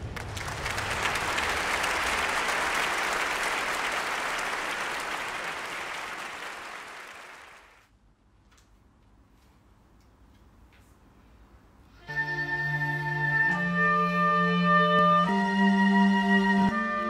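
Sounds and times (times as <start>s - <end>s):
audience applause: 0.0s - 7.9s.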